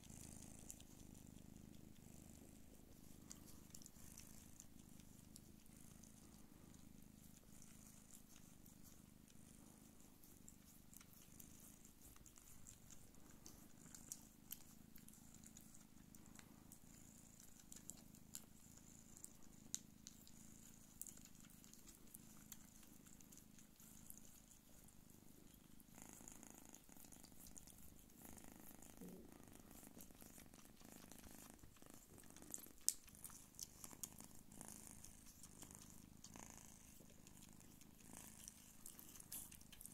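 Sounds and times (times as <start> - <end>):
cats purring: 0.0 - 39.9
faint clicks: 19.2 - 23.7.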